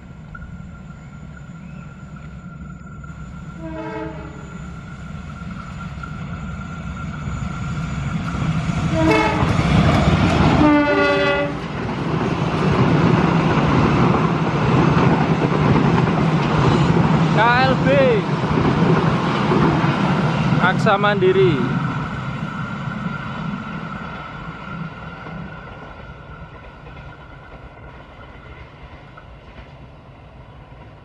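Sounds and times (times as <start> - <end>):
train wheel clatter: 0.3 - 31.0
train horn blasts: 3.6 - 4.7, 8.9 - 9.8, 10.5 - 11.7.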